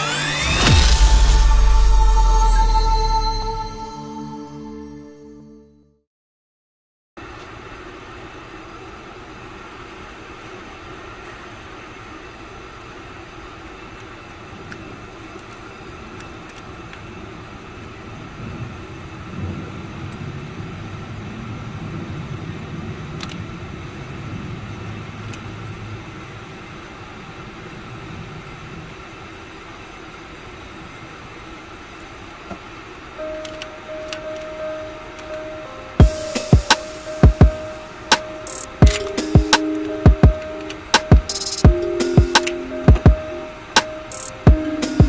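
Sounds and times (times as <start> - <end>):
low rumble: 0.0 - 4.2
steady background hum: 7.2 - 45.0.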